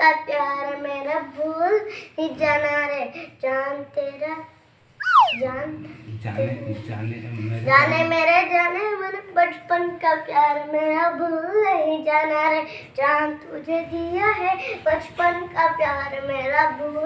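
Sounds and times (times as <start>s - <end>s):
boy singing: 13.0s - 17.0s.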